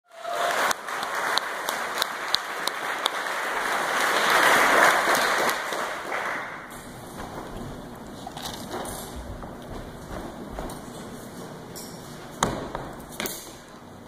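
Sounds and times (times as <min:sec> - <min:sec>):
audience applauding: 0:00.1 - 0:06.7.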